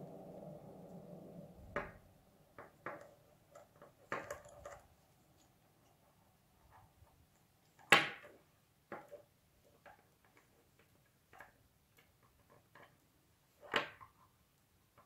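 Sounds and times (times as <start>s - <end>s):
cord rustling and sliding: 0.2s - 7.9s
soft clicks and scrapes: 2.6s - 7.9s.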